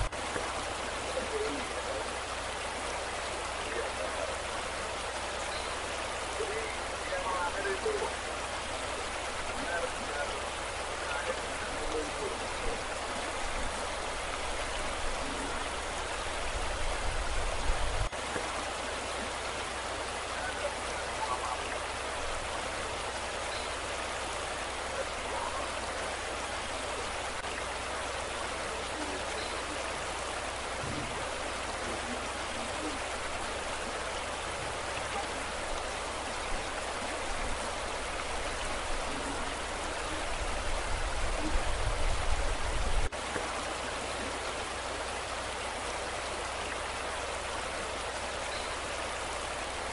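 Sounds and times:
floodwater gushing: 0:00.0 - 0:49.9
low rumbles: 0:30.1 - 0:43.1.

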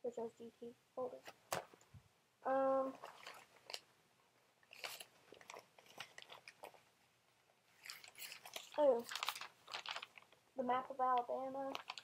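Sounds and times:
papers rustling and crinkling: 0:02.8 - 0:03.9, 0:04.6 - 0:06.9, 0:07.7 - 0:10.4, 0:11.1 - 0:12.0.

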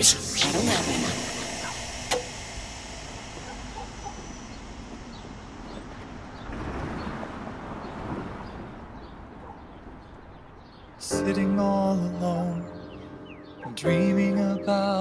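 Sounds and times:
traffic hum: 0:00.0 - 0:11.1
wind: 0:01.2 - 0:15.0.

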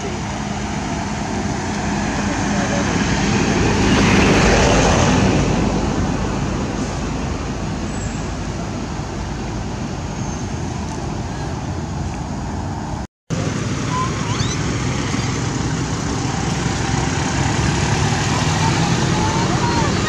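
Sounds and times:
loud rumbling background noise: 0:00.0 - 0:20.0
faint high chirps: 0:13.9 - 0:14.6.

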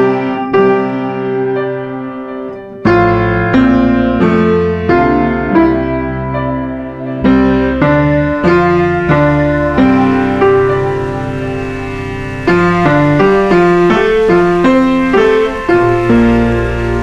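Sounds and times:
slow piano melody: 0:00.0 - 0:17.0.

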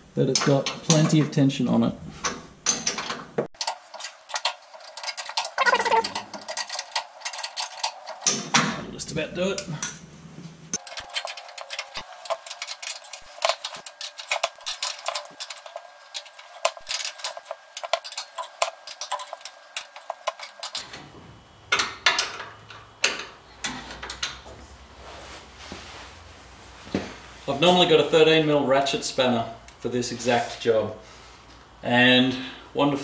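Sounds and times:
spanner clicking on steel bolts: 0:21.7 - 0:24.4.

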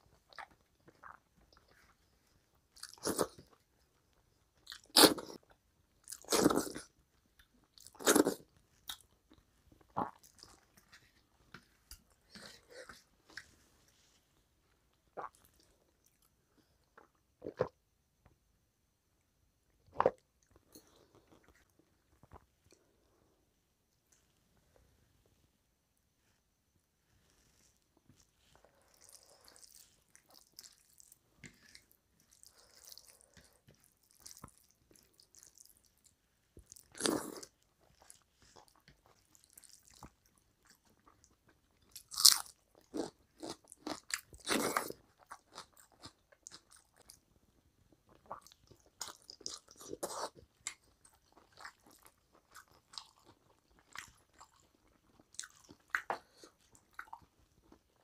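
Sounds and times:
person chewing wetly: 0:00.2 - 0:01.8, 0:28.6 - 0:47.2, 0:48.1 - 0:58.0.

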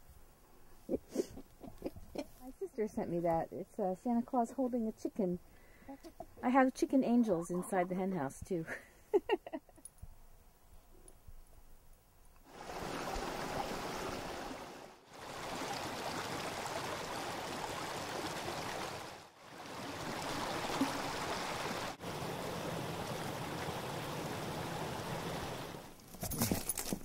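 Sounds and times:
creek water rushing over rocks: 0:12.5 - 0:26.0.

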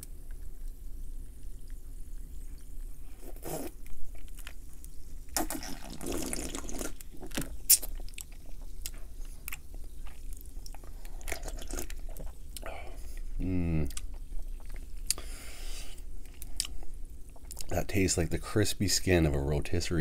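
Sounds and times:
sips and swallows: 0:05.4 - 0:08.0.

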